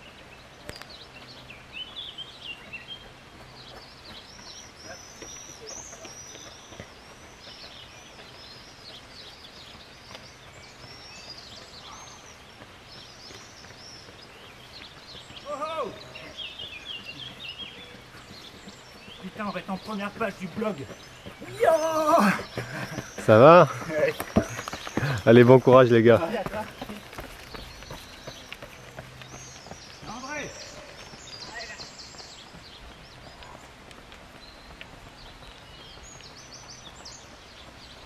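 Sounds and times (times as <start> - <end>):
songbirds chirping and singing: 0.0 - 38.0.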